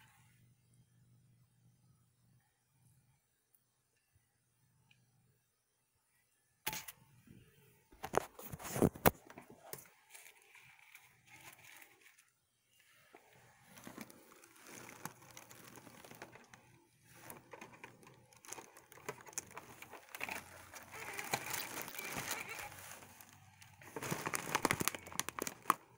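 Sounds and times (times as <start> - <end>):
paper rustling: 8.0 - 12.3, 13.2 - 25.9.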